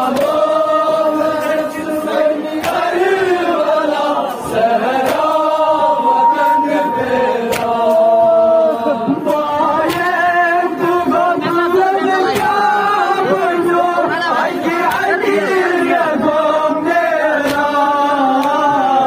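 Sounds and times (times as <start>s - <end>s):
men chanting into microphones: 0.0s - 19.0s
men joining in chant: 0.0s - 19.0s
chest slapping: 7.5s - 8.0s.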